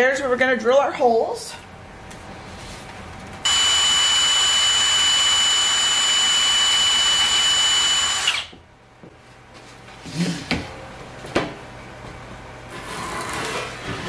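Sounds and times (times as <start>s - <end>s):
drill whining through metal: 3.5s - 8.6s.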